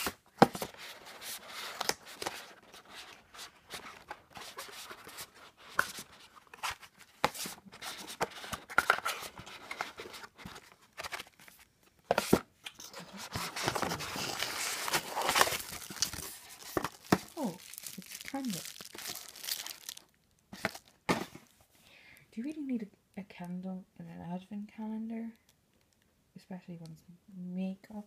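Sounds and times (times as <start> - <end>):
paper wrapping rustling: 0.0 - 21.6.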